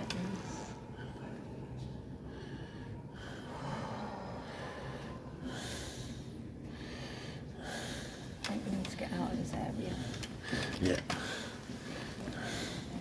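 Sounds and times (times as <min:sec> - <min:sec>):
person breathing heavily: 0:02.1 - 0:08.4, 0:09.8 - 0:13.0.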